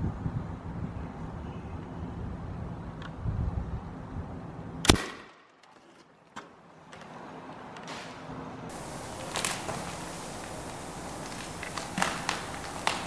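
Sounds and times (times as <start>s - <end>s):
wind on microphone: 0.0s - 4.5s
air rifle shot: 4.9s - 5.4s.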